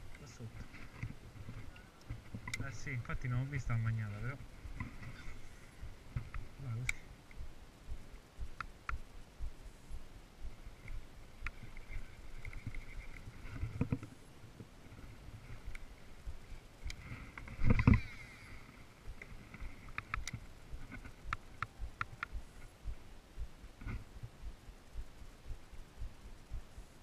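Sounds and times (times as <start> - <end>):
sharp clicks: 5.8 - 7.5, 8.4 - 9.1, 10.8 - 14.1, 16.8 - 18.1, 19.1 - 22.5.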